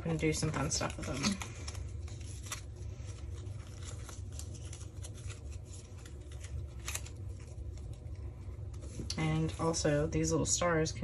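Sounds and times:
steady low hum: 0.0 - 11.0
plastic tags clicking and rustling: 0.1 - 7.1.

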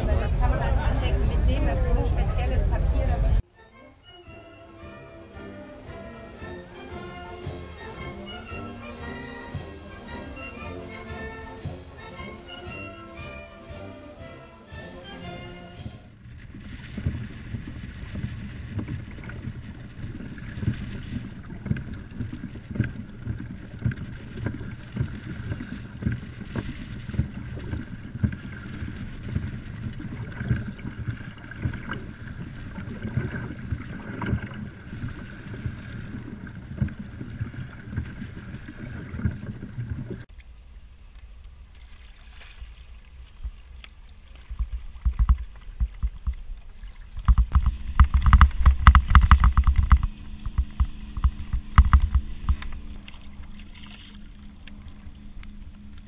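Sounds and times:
wind buffeting microphone: 0.0 - 3.4, 15.8 - 40.3
water slapping kayak hull: 0.0 - 56.0.

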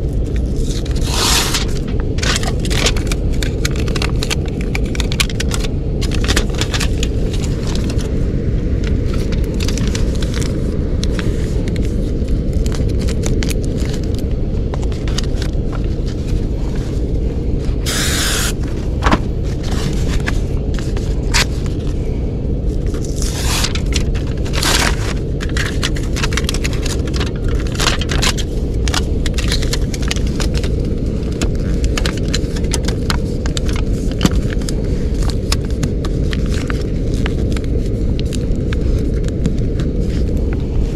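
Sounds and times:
foil tape crinkling and clicking: 0.0 - 8.2, 8.8 - 16.6, 17.7 - 22.0, 22.7 - 40.6
steady low rumble: 0.0 - 40.9
tape ripping peels: 0.6 - 7.1, 17.8 - 18.6, 23.0 - 30.7.

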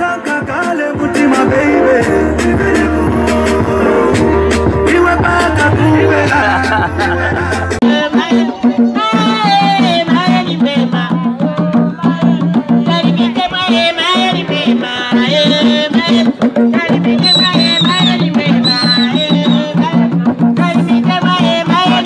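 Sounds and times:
drums beating steadily: 0.0 - 22.0
voices singing: 0.0 - 22.0.

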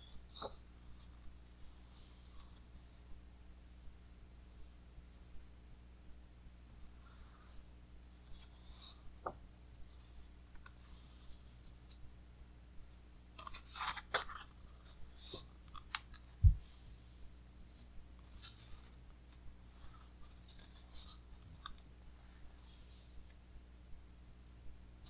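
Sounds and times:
book pages turning: 0.3 - 1.3, 13.4 - 16.3
paper rustling: 13.4 - 15.4.

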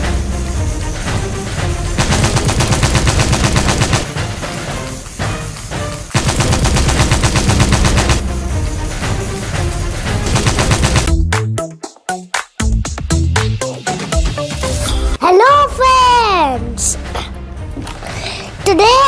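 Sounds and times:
electronic machine-gun sound effect: 2.0 - 4.2, 6.2 - 8.2, 10.2 - 11.1.

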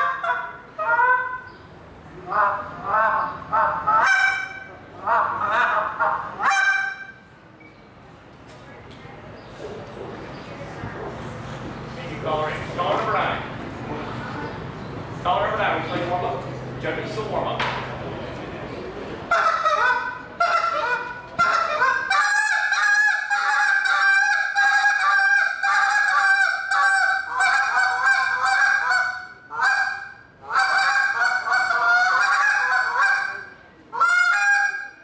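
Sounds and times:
goose call honks and clucks: 0.0 - 1.5, 2.2 - 7.2, 19.3 - 35.0.

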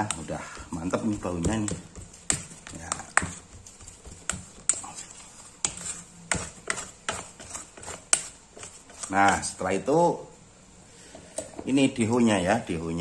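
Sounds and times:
plastic scoop scraping metal bowl: 0.0 - 9.6.

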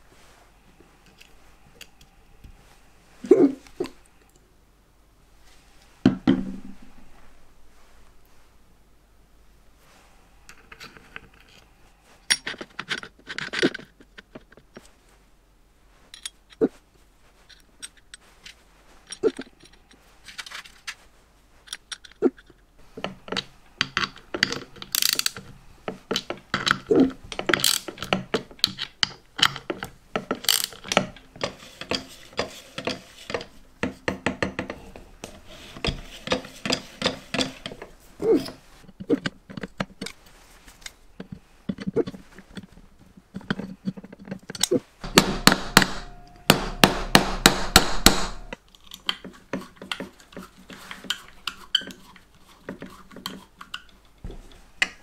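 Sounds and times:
metal tools clicking and knocking: 12.3 - 14.9, 21.7 - 40.2.

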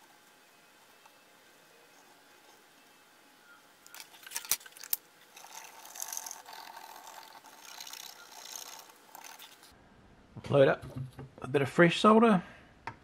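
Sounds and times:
cotton swab scrubbing circuit board: 5.3 - 9.7.

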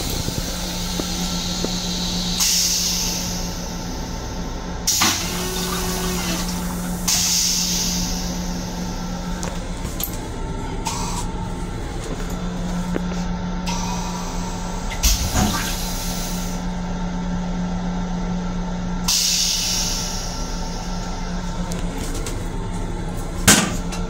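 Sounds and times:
steady low hum: 0.0 - 24.0
water hissing in toilet: 4.9 - 8.4
rinse water hissing: 4.9 - 8.6
loud clunk: 23.4 - 24.0.

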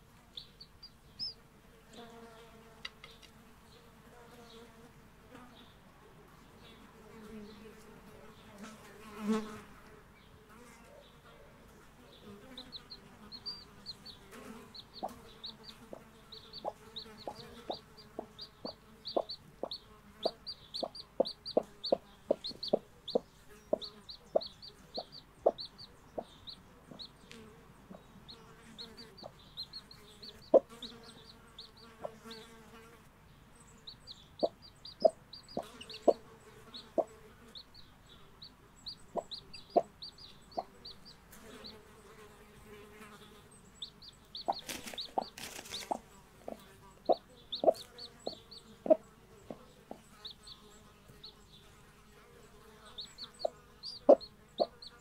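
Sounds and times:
chicks peeping: 0.3 - 1.4, 12.1 - 32.6, 33.6 - 55.0
hen clucking: 0.3 - 1.4, 12.1 - 32.4, 33.9 - 42.0, 43.8 - 51.3, 52.9 - 55.0.

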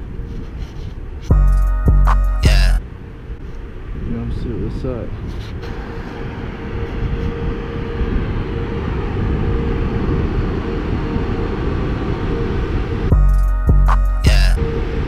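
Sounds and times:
steady hum: 1.3 - 3.5, 5.6 - 15.0
wind rushing over microphone: 3.2 - 13.3.

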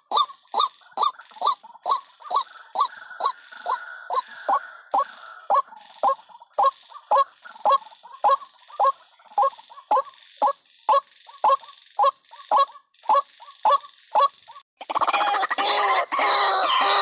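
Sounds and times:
waterhen calls: 0.0 - 17.0.

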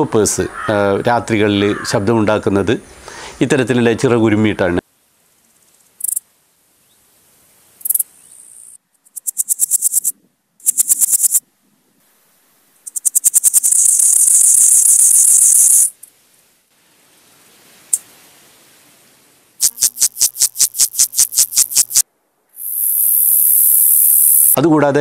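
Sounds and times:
grasshoppers stridulating: 5.4 - 6.2, 7.8 - 11.4, 12.8 - 16.1, 19.6 - 22.0, 22.6 - 24.6
loud high insect buzz: 7.8 - 11.4, 12.8 - 16.0, 19.6 - 22.0, 22.6 - 24.6.

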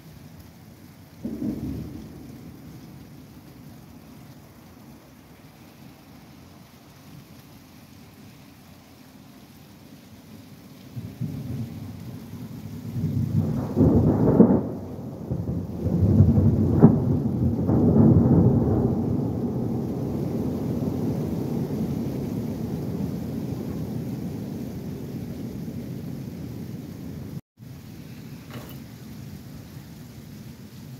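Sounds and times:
steady rain: 0.0 - 30.9
thunder rumbling: 1.1 - 7.4, 10.9 - 30.0
sharp thunder cracks: 1.2 - 3.4, 11.0 - 27.4.

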